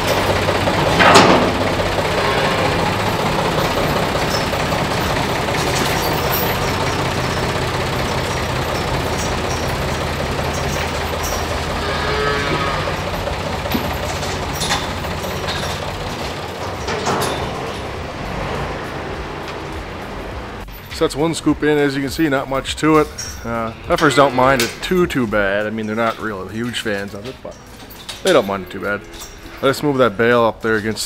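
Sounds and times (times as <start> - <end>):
cow mooing: 0.0 - 15.8, 16.9 - 20.6, 27.6 - 30.4
tractor engine running: 0.0 - 31.0.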